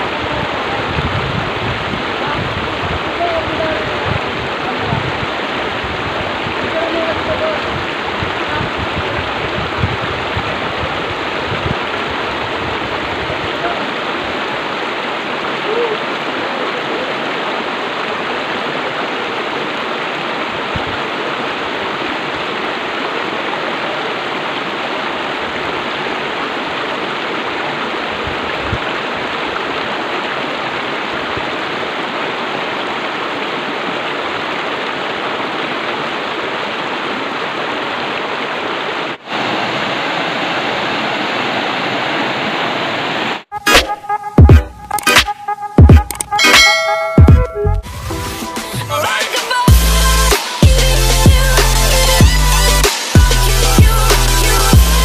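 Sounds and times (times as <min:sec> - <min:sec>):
river rapids rushing: 0:00.0 - 0:43.5, 0:46.4 - 0:55.0.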